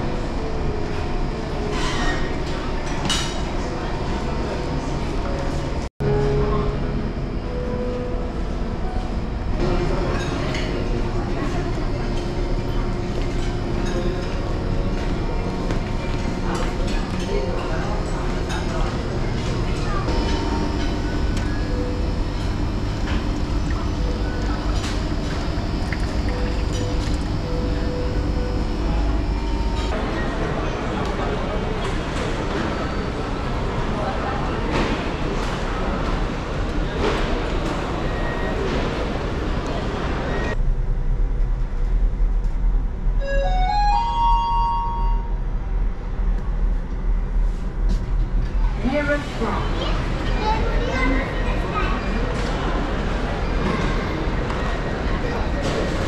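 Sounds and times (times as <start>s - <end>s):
steady low hum: 0.0s - 34.6s, 35.2s - 56.0s
low room rumble: 0.0s - 56.0s
electronic chime rising notes: 43.2s - 45.4s.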